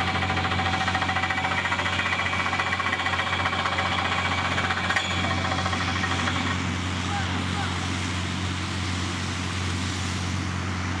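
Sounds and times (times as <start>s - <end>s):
drilling rig engine knocking: 0.0s - 6.8s.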